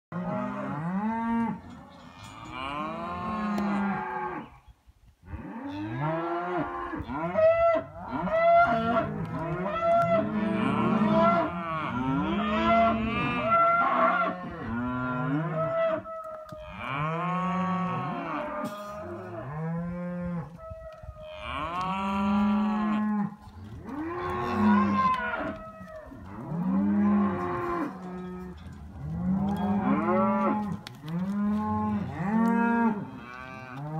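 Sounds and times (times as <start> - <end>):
young cattle mooing: 5.3 - 33.9.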